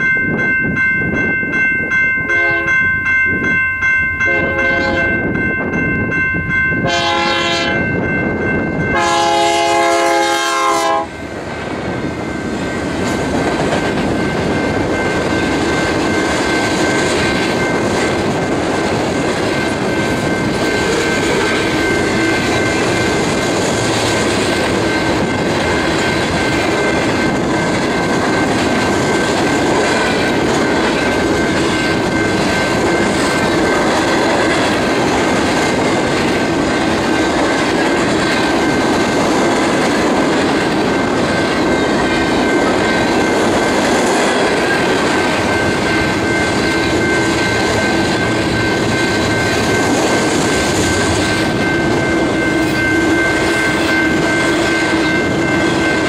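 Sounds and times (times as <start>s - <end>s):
locomotive air horn blasts: 2.3s - 2.8s, 4.3s - 5.2s, 6.8s - 7.8s, 8.9s - 11.2s
train wheels clattering on rails: 6.8s - 56.0s.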